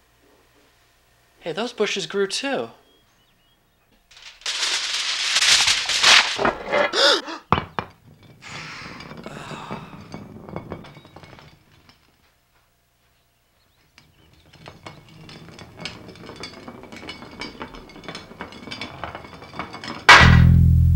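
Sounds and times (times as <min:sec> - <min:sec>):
glass jar rolling on wooden floor: 0:04.1 - 0:12.4, 0:13.9 - 0:20.1
sharp thunk: 0:20.1 - 0:20.9.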